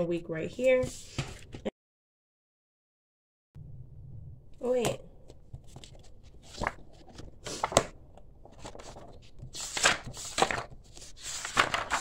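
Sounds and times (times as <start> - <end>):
paper pages flipping: 5.2 - 12.0.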